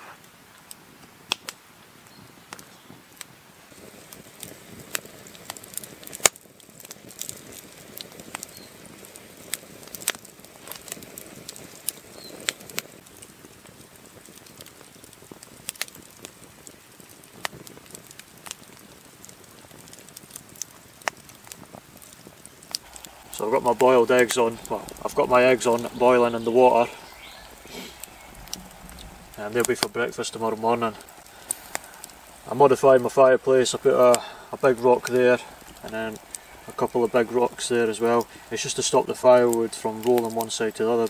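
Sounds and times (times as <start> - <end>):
campfire crackling: 0.0 - 41.0
fire pops and snaps: 0.1 - 41.0
low hiss: 19.7 - 41.0.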